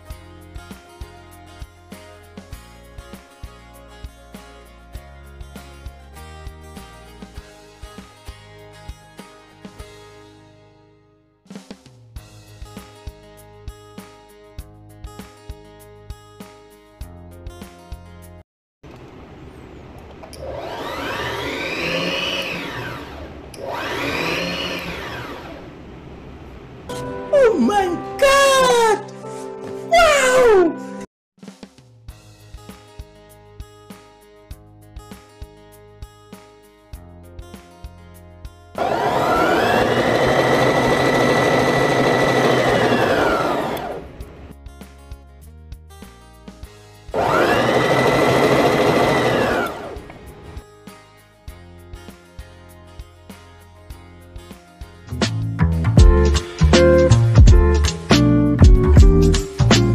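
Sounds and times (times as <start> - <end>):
sewing machine motor whining: 20.4 - 25.7, 38.8 - 44.3, 47.2 - 50.3.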